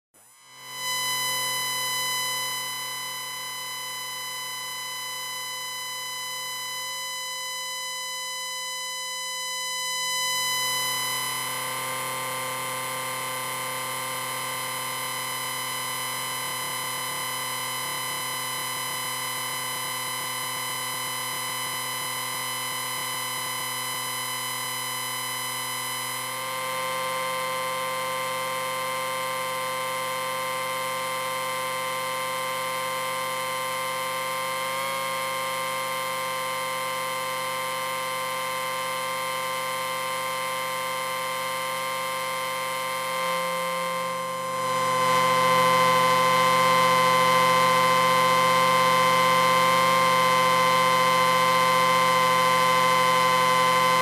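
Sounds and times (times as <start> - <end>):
electronic drone with hiss: 25.3 - 54.0.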